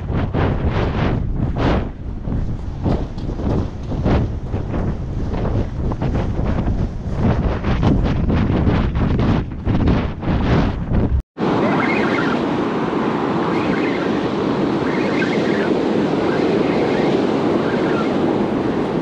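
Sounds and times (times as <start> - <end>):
wind buffeting microphone: 0.0 - 19.0
surf breaking on beach: 11.4 - 19.0.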